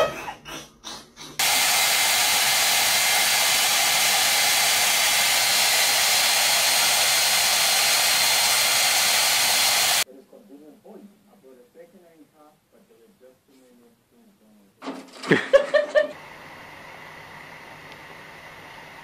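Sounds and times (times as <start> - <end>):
hair dryer blowing: 1.4 - 10.0, 16.0 - 19.0.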